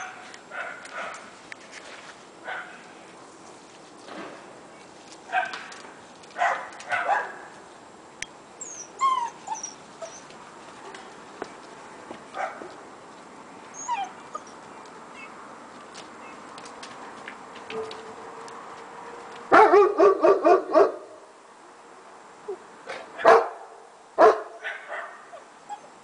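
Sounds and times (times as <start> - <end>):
dog whimpering yelps: 8.6 - 10.3, 13.8 - 14.6, 25.4 - 26.0
puppies yapping: 8.6 - 10.3, 13.7 - 14.6.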